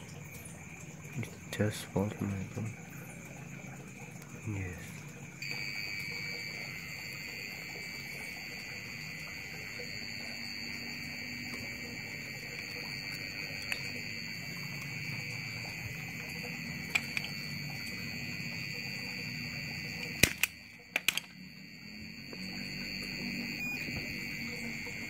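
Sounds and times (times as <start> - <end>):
high-pitched electronic buzzer tone: 5.4 - 25.0.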